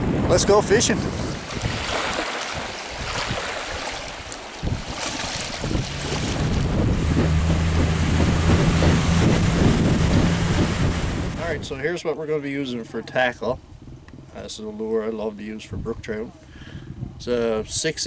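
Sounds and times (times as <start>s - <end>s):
wind buffeting microphone: 0.0s - 12.0s, 13.6s - 14.4s, 15.6s - 17.9s
outboard motor running: 4.7s - 11.7s.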